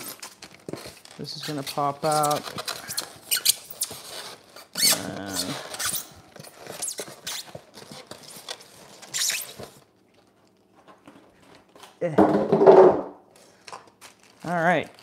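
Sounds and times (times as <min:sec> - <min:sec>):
polystyrene foam squeaking and scraping: 0:00.0 - 0:09.9.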